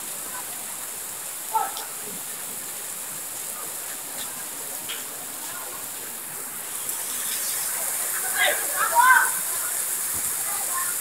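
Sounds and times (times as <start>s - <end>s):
rain falling: 0.0s - 11.0s
distant shouts: 8.1s - 9.8s.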